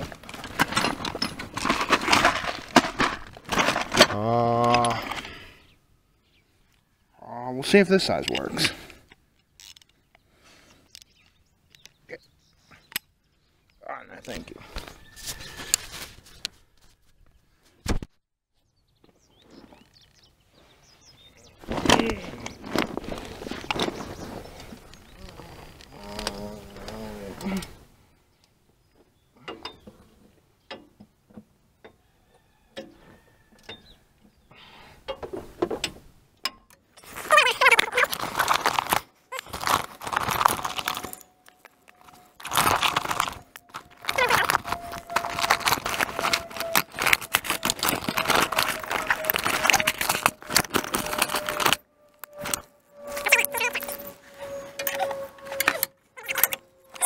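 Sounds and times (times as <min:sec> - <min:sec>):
scraping and shuffling on gravel: 0:00.0 - 0:05.4, 0:14.3 - 0:17.7, 0:19.3 - 0:27.8, 0:37.0 - 0:57.0
man grunting: 0:04.1 - 0:05.0, 0:25.9 - 0:27.8.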